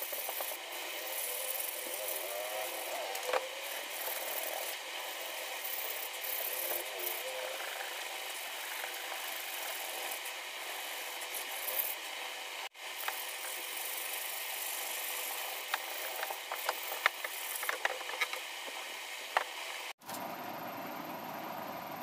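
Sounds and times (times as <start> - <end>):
sandpaper rubbing on wood: 0.0 - 12.0, 13.0 - 18.0.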